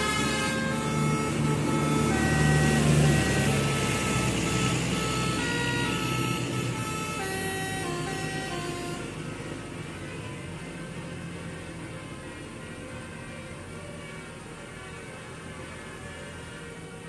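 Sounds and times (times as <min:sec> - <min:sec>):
multi-tone air horn melody: 0:00.0 - 0:09.3
bus engine drone: 0:00.0 - 0:17.0.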